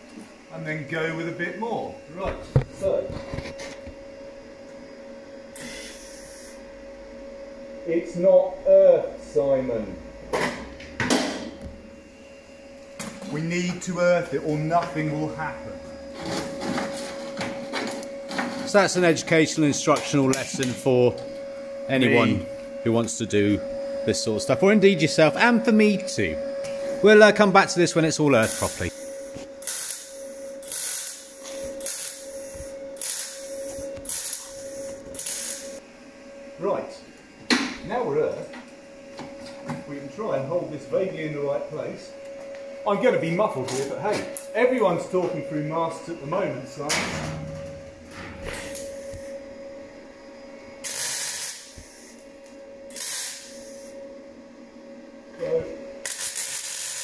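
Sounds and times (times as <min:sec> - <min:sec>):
steady hum: 0:00.0 - 0:57.0
welding arc crackling and hissing: 0:05.6 - 0:06.7, 0:13.2 - 0:21.2, 0:21.9 - 0:35.8, 0:43.2 - 0:45.0, 0:48.4 - 0:49.4, 0:50.8 - 0:54.0, 0:56.0 - 0:57.0.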